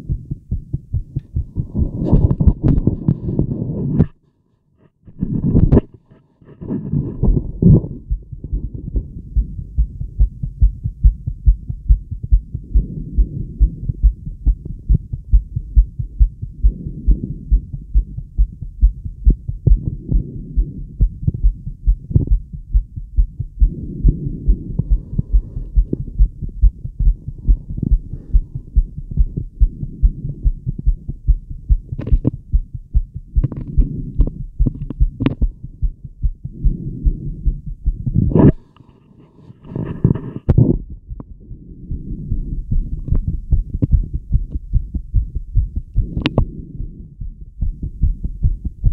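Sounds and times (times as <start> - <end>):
fast heartbeat through stethoscope: 0.0 - 4.2, 5.1 - 38.7, 39.7 - 48.9.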